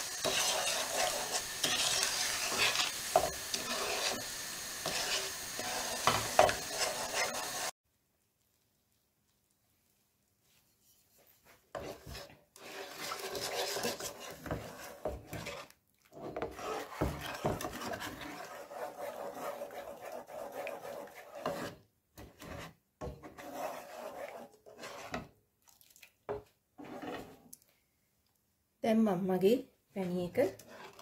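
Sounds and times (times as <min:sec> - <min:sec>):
wooden spatula scraping pan: 0:00.0 - 0:07.7, 0:10.9 - 0:25.4, 0:26.8 - 0:27.4, 0:30.0 - 0:31.0.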